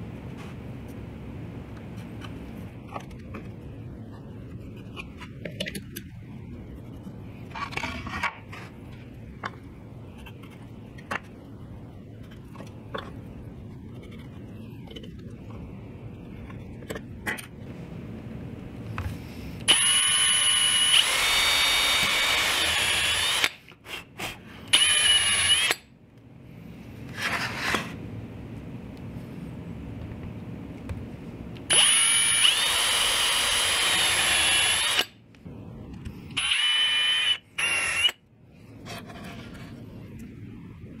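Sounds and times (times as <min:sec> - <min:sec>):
power drill boring into wood: 0:19.7 - 0:23.6, 0:24.8 - 0:25.8, 0:31.7 - 0:35.1, 0:36.4 - 0:38.1.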